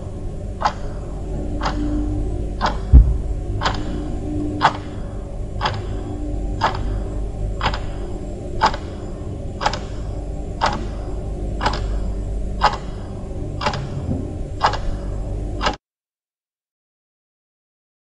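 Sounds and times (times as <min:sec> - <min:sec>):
steady low hum: 0:00.0 - 0:15.8
clock ticking: 0:00.6 - 0:01.0, 0:01.6 - 0:01.9, 0:02.6 - 0:04.0, 0:04.6 - 0:05.0, 0:05.6 - 0:06.0, 0:06.6 - 0:07.0, 0:07.6 - 0:15.8.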